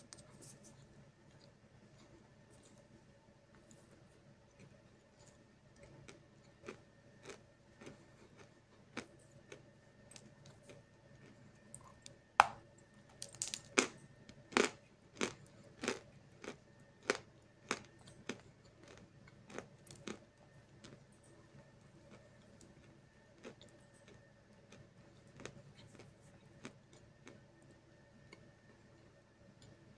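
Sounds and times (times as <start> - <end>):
chewing crunches: 4.4 - 12.2, 13.2 - 27.7.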